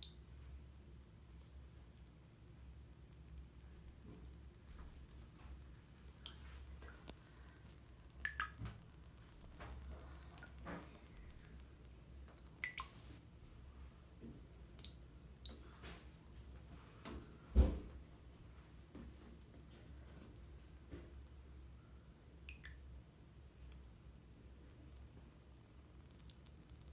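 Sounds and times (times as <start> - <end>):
bath bomb fizzing: 1.4 - 13.8.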